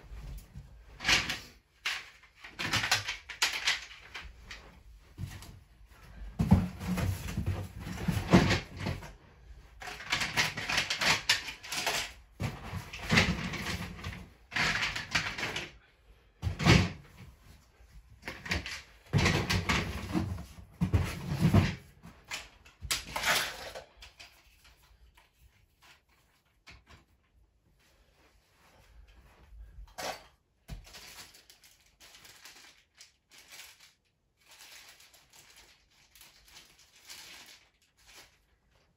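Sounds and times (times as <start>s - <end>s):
plastic toy parts clattering: 1.0s - 4.7s, 9.8s - 15.8s, 18.2s - 25.2s, 29.9s - 38.4s
faint clicks of toy pieces: 1.8s - 4.3s, 30.0s - 38.4s
packaging rustling: 30.8s - 38.8s.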